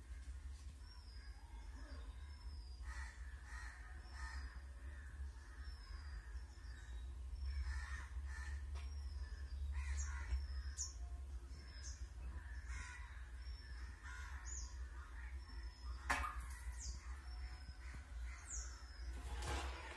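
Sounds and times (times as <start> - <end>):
crows cawing: 2.8 - 6.3, 7.5 - 10.8, 12.3 - 15.5.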